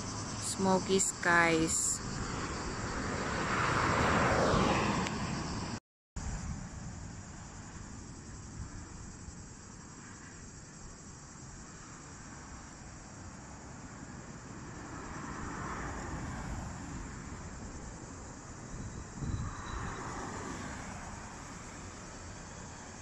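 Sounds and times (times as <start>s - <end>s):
motorway traffic rushing: 0.0s - 23.0s
vehicle passing loudly: 0.1s - 5.8s.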